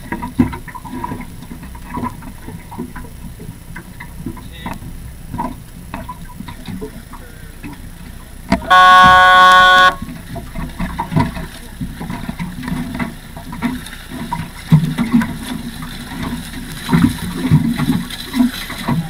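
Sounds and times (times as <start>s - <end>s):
signal horn blast: 8.6s - 10.1s.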